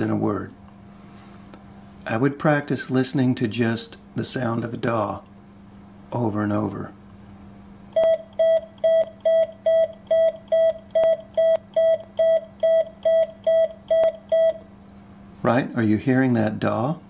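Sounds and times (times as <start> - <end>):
faint steady hum: 0.0 - 17.0
morse code beeps: 8.0 - 14.6.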